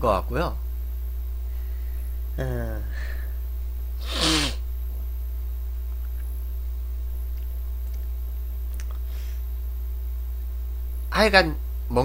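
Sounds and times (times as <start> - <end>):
steady low hum: 0.0 - 12.0
man's breathy vocal burst: 4.0 - 4.6.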